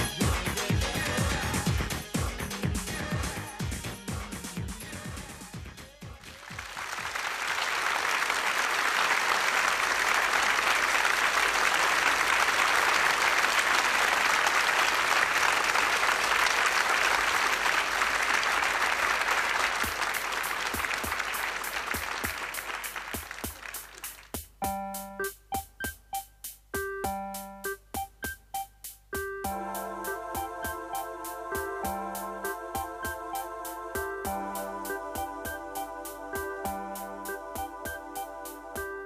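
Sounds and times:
rhythmic sharp claps: 0:00.0 - 0:39.0
audience applauding: 0:06.1 - 0:24.4.

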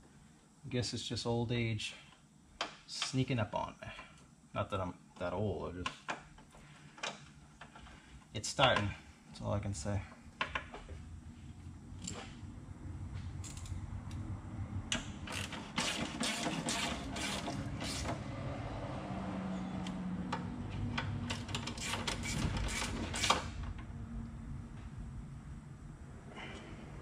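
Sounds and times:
low steady hum: 0:00.0 - 0:27.0
hand ratchet clicking: 0:21.3 - 0:23.5.

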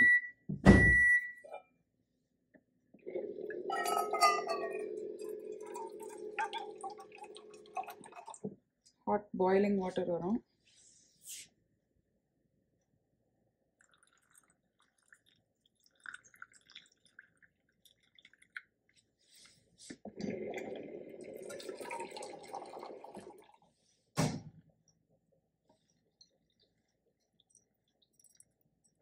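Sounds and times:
hot water pouring: 0:03.0 - 0:08.5, 0:13.8 - 0:19.2, 0:20.0 - 0:23.7.

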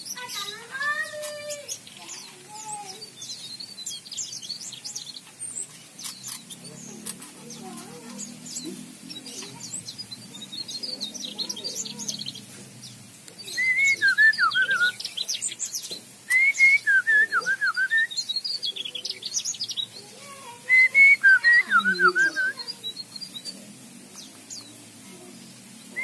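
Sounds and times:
high bird twittering: 0:00.0 - 0:24.8
bird whistled song phrases: 0:13.4 - 0:23.5.

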